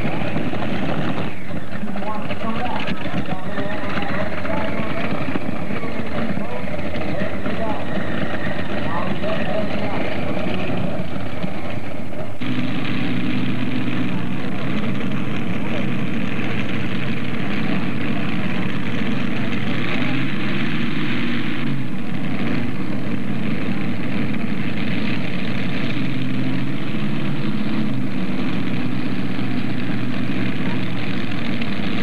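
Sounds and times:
tractor engines idling: 0:00.0 - 0:32.0.

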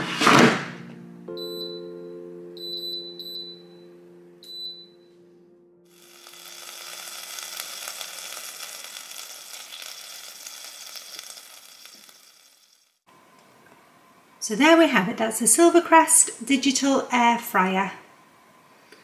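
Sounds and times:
chicken sizzling: 0:05.9 - 0:13.1.

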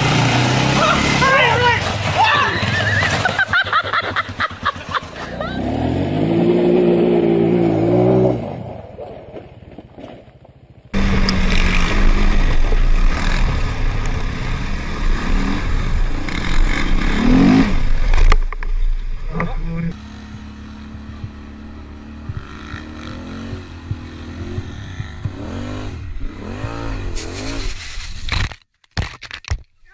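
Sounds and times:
quads running on dirt trail: 0:00.0 - 0:05.8, 0:08.9 - 0:14.6, 0:17.8 - 0:26.3
quad engine revving: 0:00.0 - 0:08.7, 0:10.9 - 0:18.4, 0:19.2 - 0:27.8.

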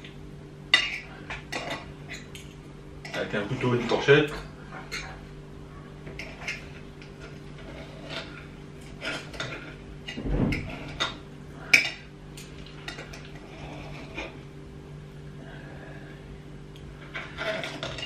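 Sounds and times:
steady hum: 0:00.0 - 0:18.0
knife and fork scraping plate: 0:06.2 - 0:09.8, 0:12.9 - 0:14.4, 0:17.0 - 0:18.0.

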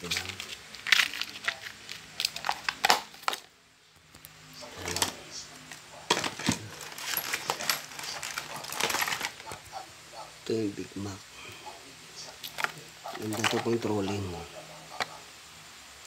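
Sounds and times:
plastic boxes clattering on tile: 0:06.1 - 0:09.4.

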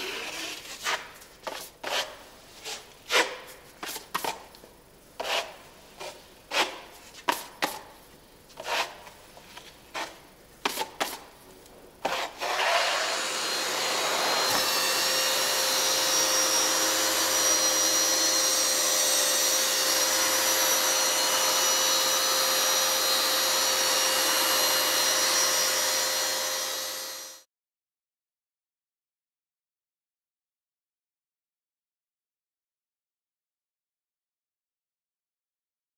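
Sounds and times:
knife scraping filler on wall: 0:00.1 - 0:04.4, 0:05.2 - 0:07.8, 0:08.6 - 0:09.2, 0:09.9 - 0:11.2, 0:12.0 - 0:13.1
wall sander whirring: 0:12.0 - 0:27.5.

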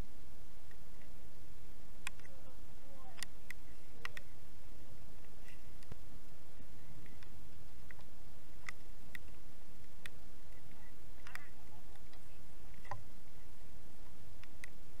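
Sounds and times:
steady low rumble: 0:00.0 - 0:15.0
light clicks and rustles: 0:05.2 - 0:13.1.

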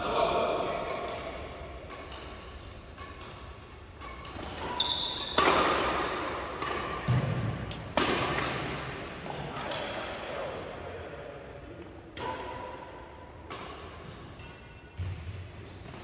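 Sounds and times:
racket hitting shuttlecock: 0:00.6 - 0:10.4, 0:12.1 - 0:16.0.

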